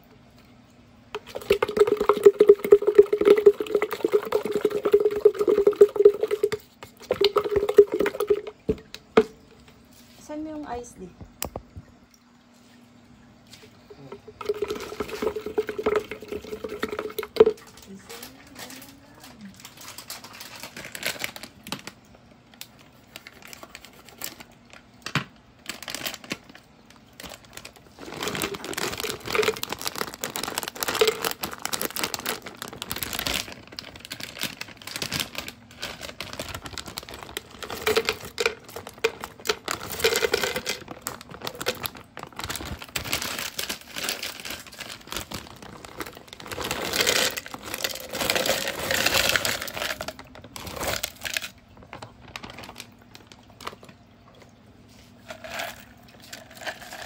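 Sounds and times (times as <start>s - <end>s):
plastic bag crinkling: 1.1s - 8.7s, 13.9s - 54.1s, 55.2s - 57.0s
ice cubes clattering into plastic cup: 1.2s - 8.8s, 14.3s - 21.9s, 27.2s - 52.9s, 55.2s - 57.0s.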